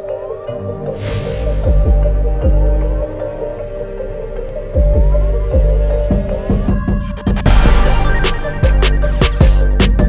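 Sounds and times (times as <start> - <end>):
electronic soundtrack music: 0.0 - 10.0
rising sweep: 0.6 - 4.9
deep bass hits: 0.9 - 3.4.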